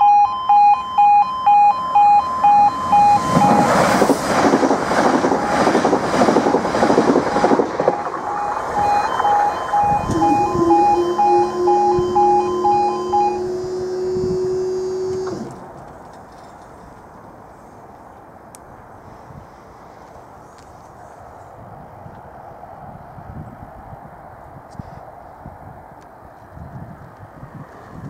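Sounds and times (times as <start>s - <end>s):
two-tone crossing alarms: 0.0s - 15.6s
high-speed train rushing past: 1.8s - 15.8s, 27.3s - 28.0s.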